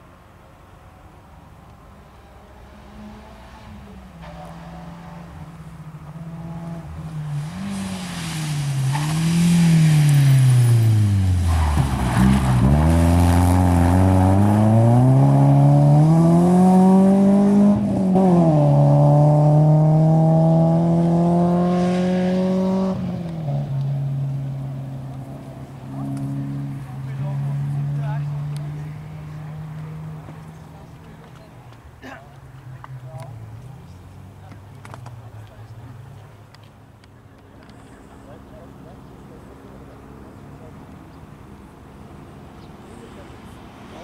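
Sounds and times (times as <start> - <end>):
rally car engine revving past: 2.3 - 30.5.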